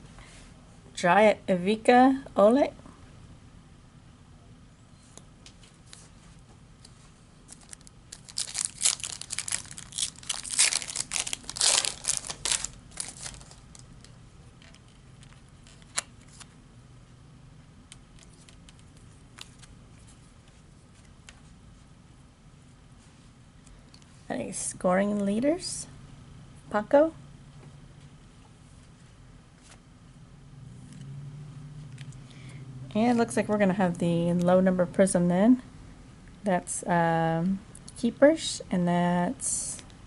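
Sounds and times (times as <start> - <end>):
foil wrapper tearing and crinkling: 7.5 - 14.1.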